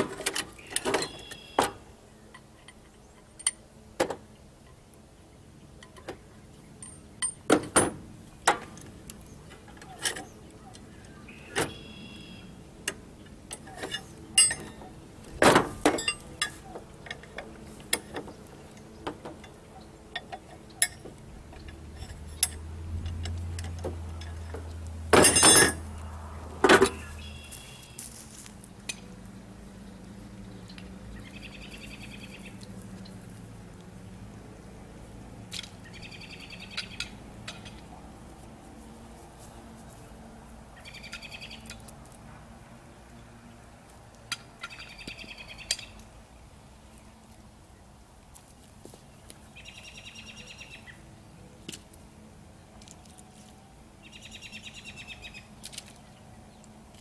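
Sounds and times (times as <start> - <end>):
short bird calls: 0.6 - 1.6, 10.9 - 12.5
metal clanks and knocks: 13.5 - 18.4, 20.2 - 26.0, 26.6 - 27.1.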